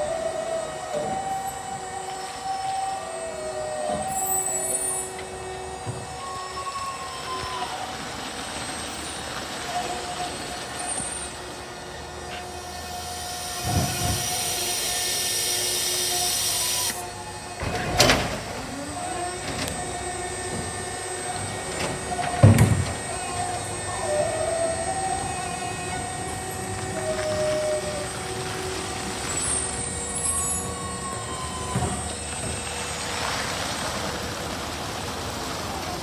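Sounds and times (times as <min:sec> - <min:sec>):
electric truck drive whine: 0:00.0 - 0:36.0
air hiss: 0:12.6 - 0:17.0.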